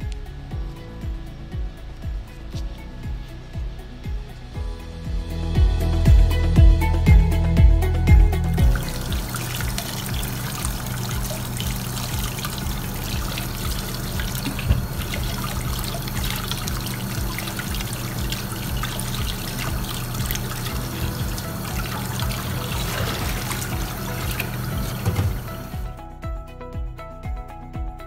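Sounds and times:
music with heavy beat: 0.0s - 28.0s
kitchen tap running: 8.6s - 25.8s
water splashing over cucumbers: 8.7s - 25.7s.

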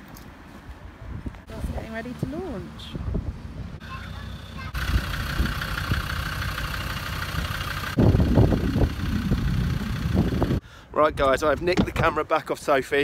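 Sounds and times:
diesel engine rumbling: 1.5s - 10.9s.

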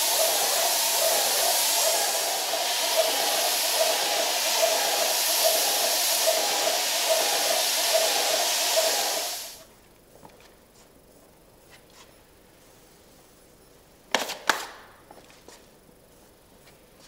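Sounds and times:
spray gun hissing: 0.0s - 9.6s.

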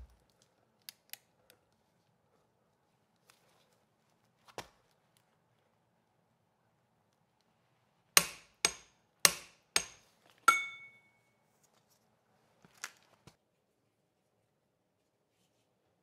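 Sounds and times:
sharp metal strikes: 8.2s - 11.1s.

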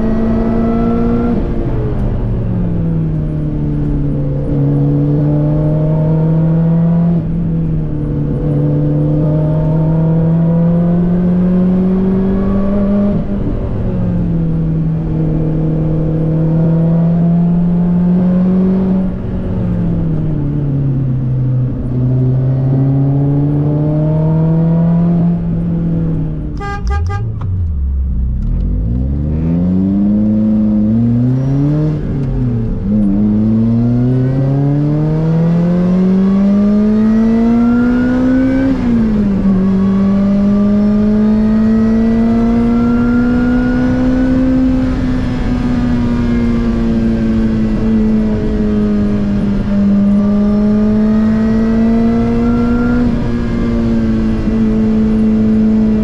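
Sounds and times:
car engine revving through gears: 0.0s - 56.0s
pulsing car horn toot: 26.6s - 27.6s.

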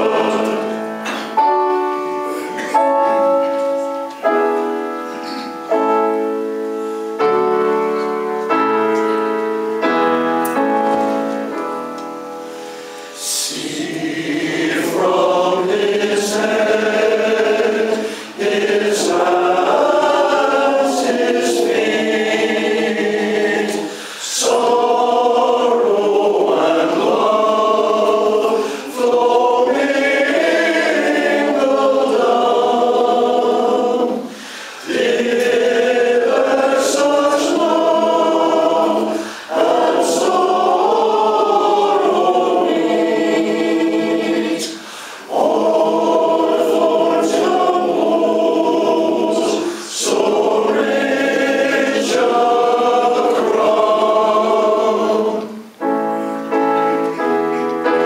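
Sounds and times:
male choir singing: 0.0s - 1.5s, 13.2s - 55.7s.

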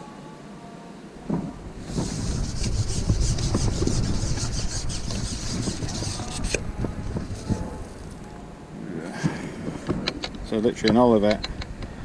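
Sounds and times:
fishing pole rasping through hands: 1.9s - 6.6s.

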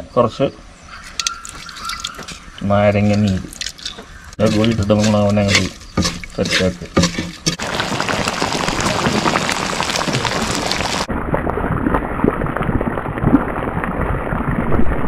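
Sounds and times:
sauce sizzling and bubbling in a pan: 7.5s - 11.1s.

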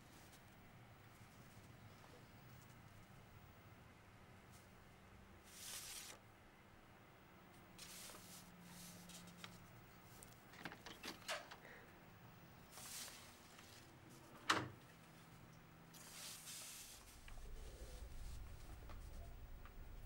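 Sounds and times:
soft rustles: 5.5s - 6.2s, 7.8s - 10.5s, 12.7s - 15.4s, 16.0s - 20.0s.

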